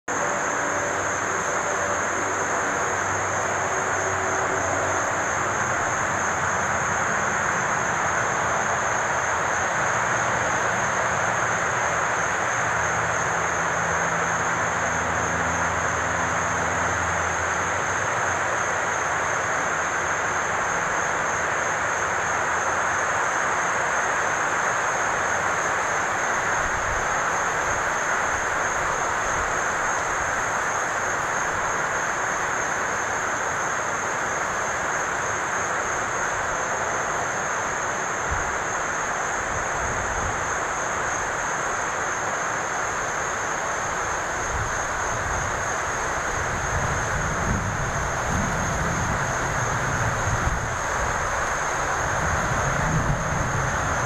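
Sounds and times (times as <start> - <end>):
low engine drone: 0.1 - 19.8
even hiss: 0.1 - 54.0
insect chorus buzzing: 0.1 - 54.0.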